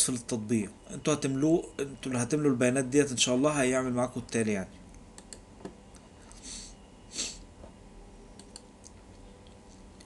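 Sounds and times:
faint mouse clicks: 8.4s - 10.0s.

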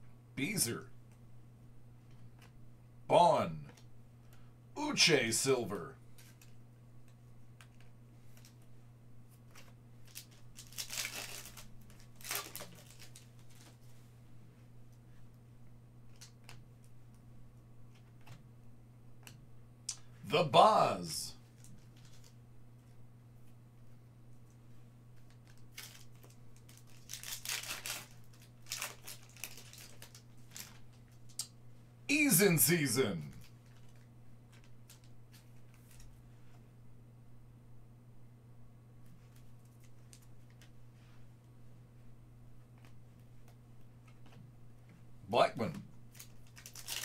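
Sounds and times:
foil wrapper crinkling and tearing: 9.6s - 13.8s, 25.4s - 31.0s, 46.1s - 47.0s.

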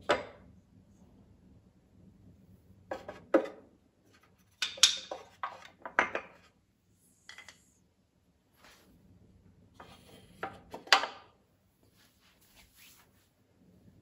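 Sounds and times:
wooden figures clacking on wood: 4.2s - 6.5s.

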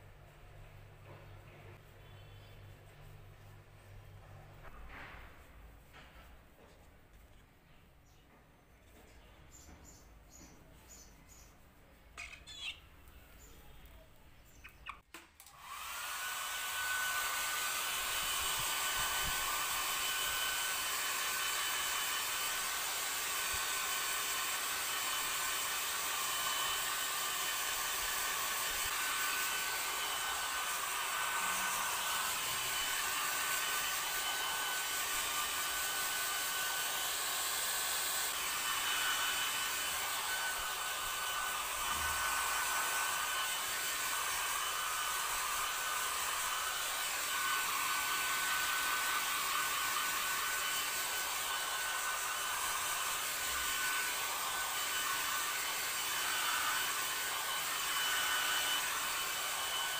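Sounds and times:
hair dryer running: 15.4s - 59.9s.

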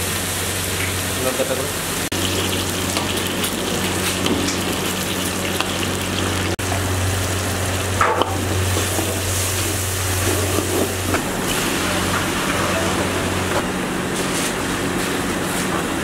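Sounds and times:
oil sizzling in a wok: 0.0s - 12.7s.

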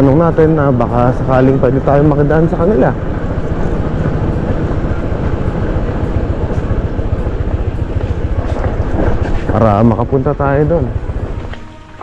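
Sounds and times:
motorcycle engine running: 0.0s - 12.0s
wind rushing over microphone: 0.0s - 12.0s.

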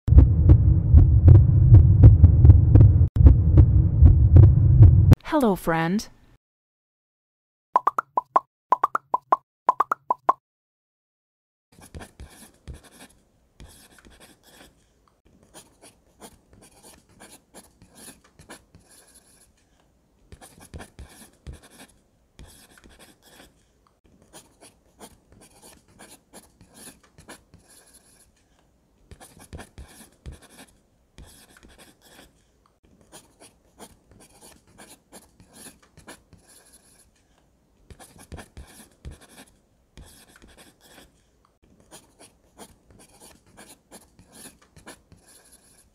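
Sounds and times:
pencil scratching on paper: 11.8s - 37.3s, 37.9s - 45.9s.

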